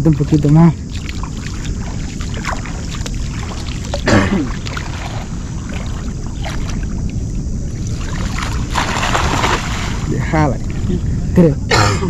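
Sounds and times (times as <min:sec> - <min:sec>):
water splash: 0:00.0 - 0:07.2, 0:07.8 - 0:10.2
shallow water sloshing and dripping: 0:00.0 - 0:11.1
wind rumble on microphone: 0:00.0 - 0:11.8.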